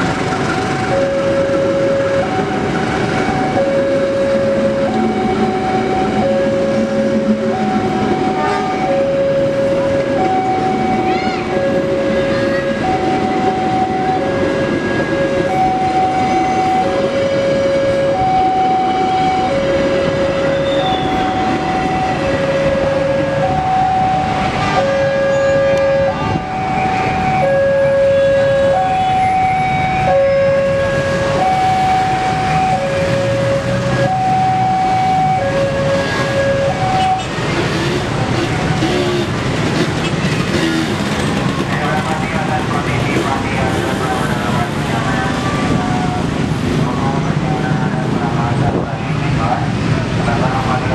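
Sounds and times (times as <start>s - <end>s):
train carriages rumbling past: 0.0s - 50.9s
level crossing two-tone alarm: 0.1s - 37.5s.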